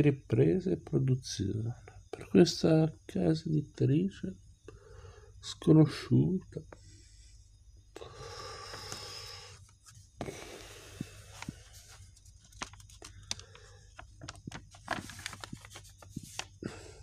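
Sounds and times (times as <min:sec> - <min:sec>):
book pages rustling: 0:09.6 - 0:16.6
paper crackles and ticks: 0:11.0 - 0:16.6.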